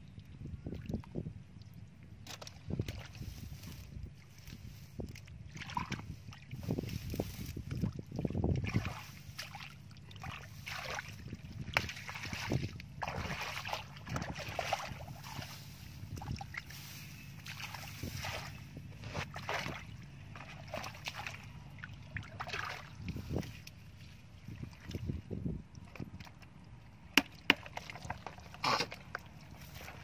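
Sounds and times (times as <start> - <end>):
hands squelching in wet mud: 2.2 - 30.0.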